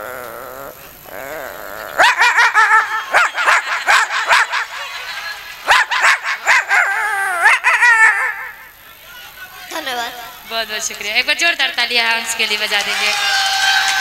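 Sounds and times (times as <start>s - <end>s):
boy imitating dog yelps: 1.2s - 4.5s, 5.7s - 8.7s.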